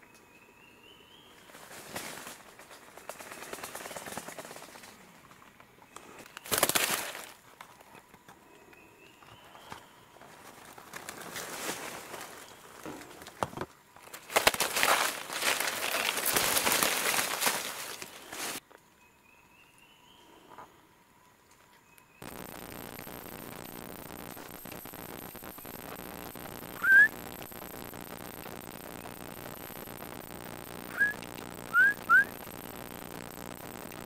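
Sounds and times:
twigs snapping: 0:06.3 - 0:07.4, 0:14.0 - 0:18.6
dry leaves rustling and crackling: 0:06.4 - 0:07.5, 0:10.2 - 0:13.2, 0:14.0 - 0:18.6.

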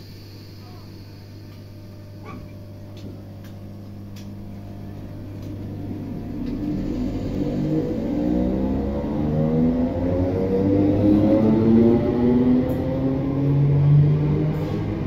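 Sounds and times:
low electric hum: 0:00.0 - 0:15.0
traction motor whine: 0:01.2 - 0:15.0
electric train pulling away: 0:04.5 - 0:15.0.

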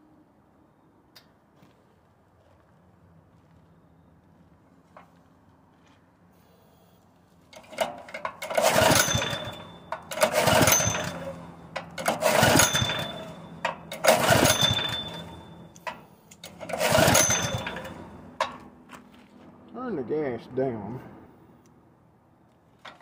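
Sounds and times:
engine recoil starter pulls: 0:07.5 - 0:18.7
engine cranking: 0:07.5 - 0:18.8.

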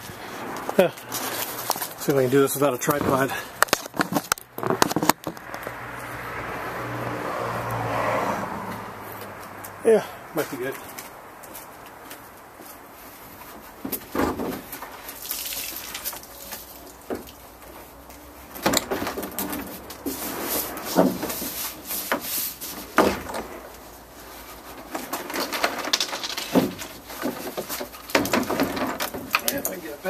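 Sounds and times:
plastic scraping against truck: 0:00.0 - 0:05.8, 0:13.1 - 0:15.2, 0:15.8 - 0:30.0
plastic knocking against truck: 0:26.5 - 0:29.4.

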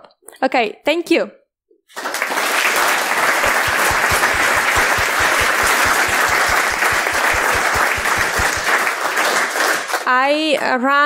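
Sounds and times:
audience applauding: 0:01.9 - 0:10.1.

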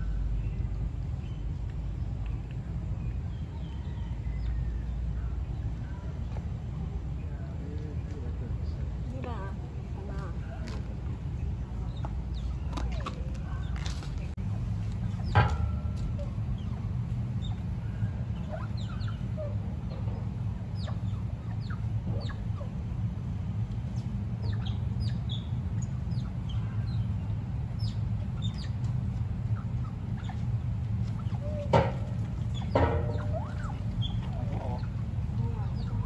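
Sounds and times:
low hum: 0:00.0 - 0:36.0
otters chirping: 0:16.1 - 0:23.0, 0:23.9 - 0:36.0.

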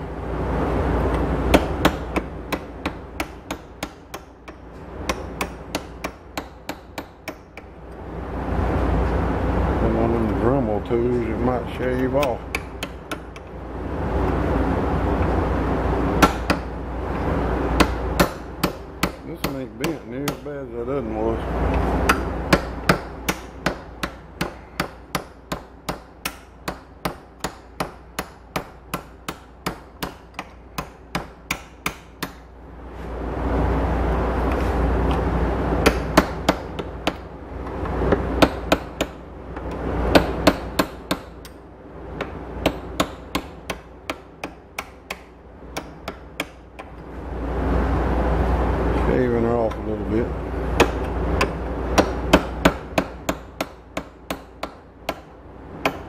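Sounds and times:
hammer striking chisel on steel: 0:01.5 - 0:07.7, 0:11.1 - 0:13.5, 0:16.2 - 0:16.7, 0:17.8 - 0:20.6, 0:21.7 - 0:32.4, 0:35.8 - 0:37.2, 0:38.1 - 0:41.6, 0:42.2 - 0:46.9, 0:50.8 - 0:56.0.

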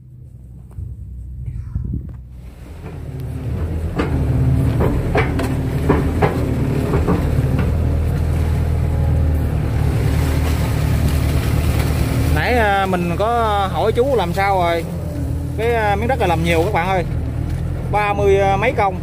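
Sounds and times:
excavator diesel engine running: 0:00.0 - 0:19.0
machine clunks: 0:02.7 - 0:07.8.

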